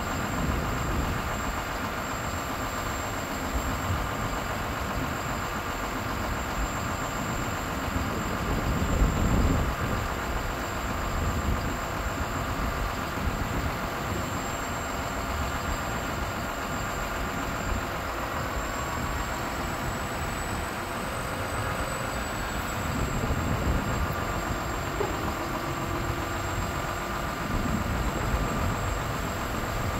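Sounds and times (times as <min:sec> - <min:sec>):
diesel truck engine idling: 0:00.0 - 0:29.9
thin high whine: 0:13.9 - 0:29.9.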